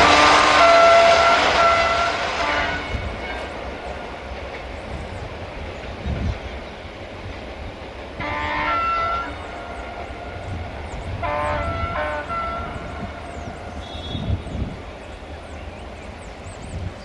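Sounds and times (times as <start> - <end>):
train horn blasts: 0.0 - 3.6, 8.2 - 10.5, 11.1 - 14.8
train rumbling: 0.0 - 17.0.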